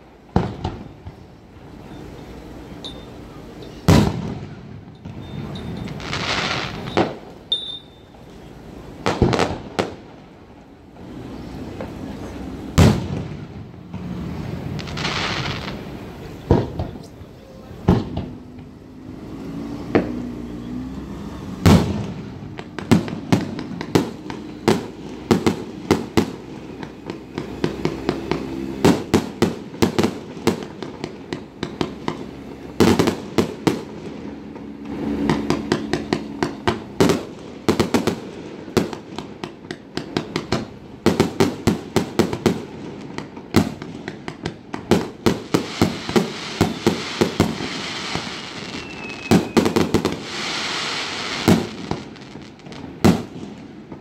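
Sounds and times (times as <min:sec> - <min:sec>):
fireworks booms: 0:00.0 - 0:07.5, 0:08.1 - 0:20.4, 0:21.5 - 0:54.0
fireworks bangs and crackles: 0:00.0 - 0:54.0.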